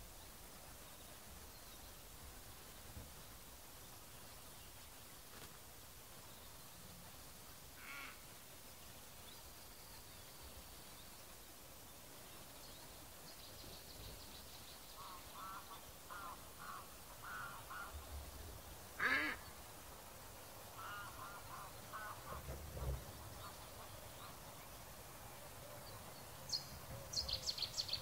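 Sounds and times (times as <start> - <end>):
faint bird calls: 7.8 - 8.4, 13.6 - 18.4, 19.0 - 19.6, 20.7 - 24.8.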